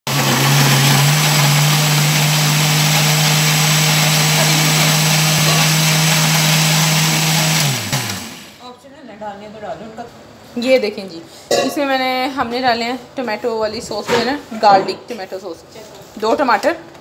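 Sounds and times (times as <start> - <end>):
blender motor whirring: 0.1 - 8.6.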